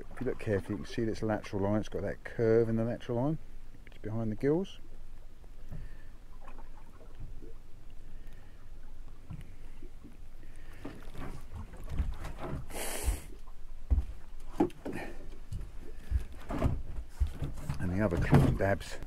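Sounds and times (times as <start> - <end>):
short hiss: 12.7 - 13.4.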